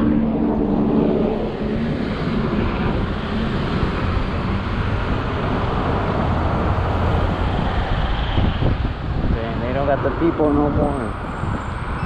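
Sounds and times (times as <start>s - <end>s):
cars passing: 0.0s - 12.0s
road rumble: 0.0s - 12.0s
wind rushing over microphone: 0.0s - 12.0s.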